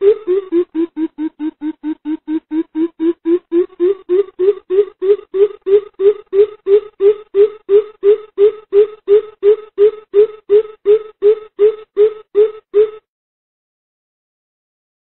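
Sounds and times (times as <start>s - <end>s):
coucal low hoots: 0.0s - 13.1s.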